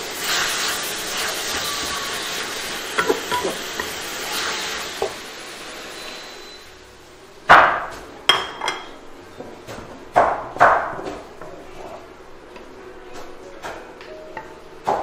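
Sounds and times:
spatula clanking on a wok: 2.9s - 4.0s.

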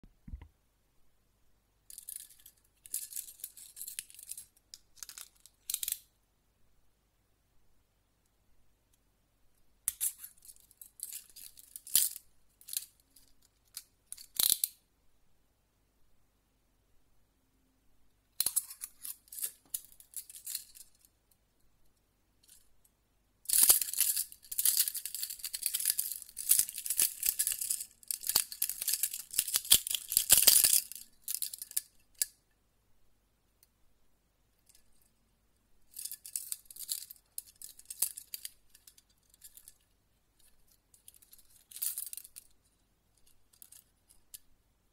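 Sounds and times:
metal handcuffs clicking and rattling: 1.9s - 6.0s, 9.9s - 14.8s, 18.4s - 21.1s, 23.5s - 32.4s, 35.9s - 44.5s.

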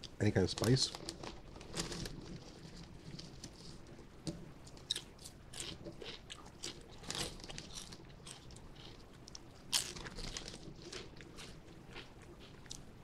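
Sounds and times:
chewing potato chip: 4.7s - 13.0s.

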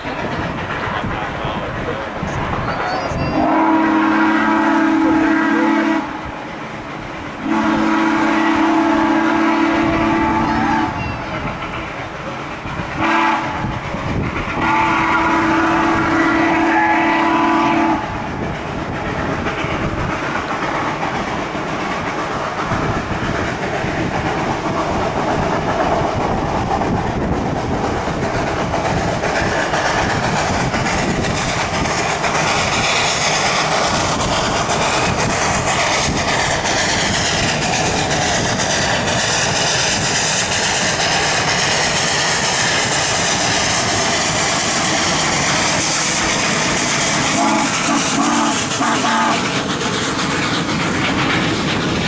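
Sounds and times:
steam locomotive and train running: 0.0s - 52.0s
steam whistle blasts: 2.9s - 6.2s, 7.4s - 11.2s, 13.0s - 13.6s, 14.6s - 18.1s, 47.3s - 49.5s.

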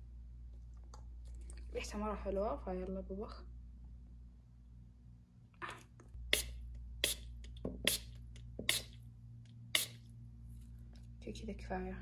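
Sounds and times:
spray bottle hissing puffs: 6.3s - 9.0s, 9.8s - 10.0s.

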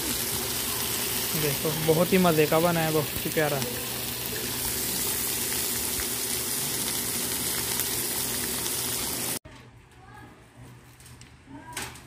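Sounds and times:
meat and onions sizzling on griddle: 0.0s - 9.4s.

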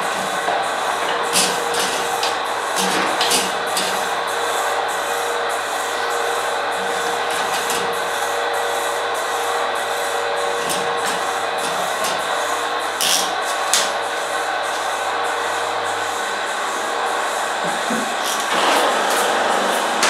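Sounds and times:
rasping mechanical rubbing: 15.7s - 20.0s.

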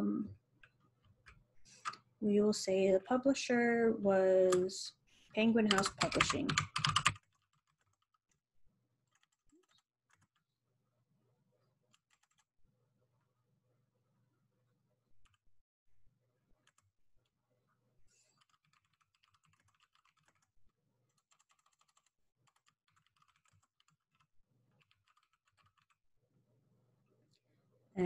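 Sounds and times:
faint keyboard typing: 4.4s - 8.2s, 9.1s - 10.5s, 11.9s - 12.5s, 15.2s - 15.4s, 16.6s - 17.3s, 18.1s - 20.5s, 21.1s - 26.0s.

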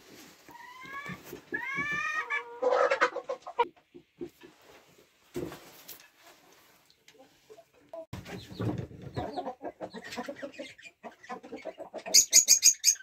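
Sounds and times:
rustle: 0.0s - 1.8s, 4.5s - 7.6s.

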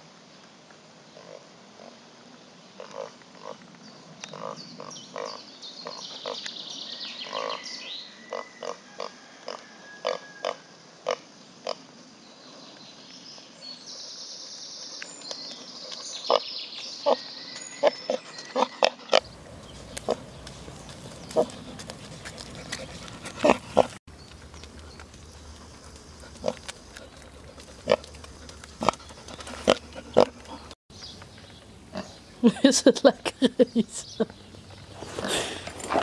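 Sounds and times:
pig grunting: 18.1s - 24.0s, 24.7s - 30.8s, 35.0s - 36.0s.

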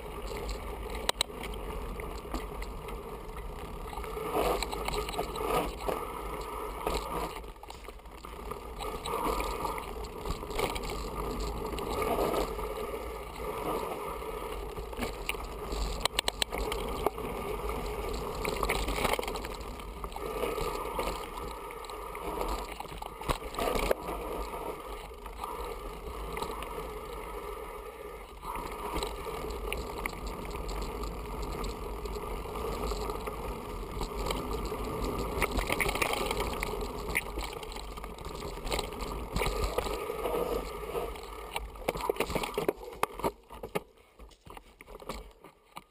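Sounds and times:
bike tyres rumbling and rattling: 0.0s - 45.9s.

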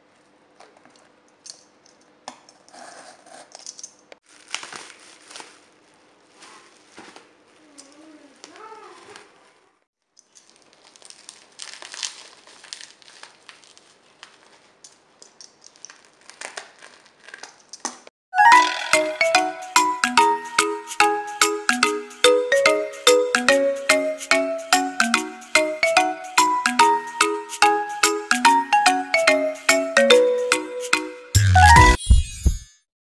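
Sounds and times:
plastic wrapping crinkling: 4.2s - 9.6s, 10.2s - 17.9s.

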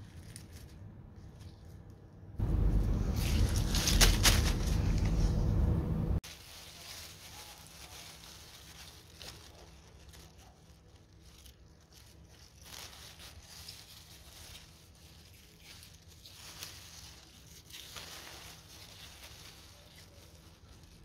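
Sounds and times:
rustling and crinkling handling noise: 0.0s - 21.0s
low steady hum: 0.2s - 6.2s.

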